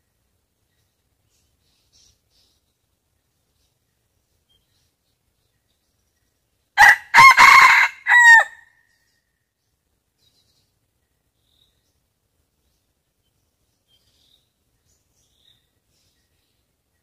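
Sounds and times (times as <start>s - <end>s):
rooster crowing: 6.8s - 8.7s.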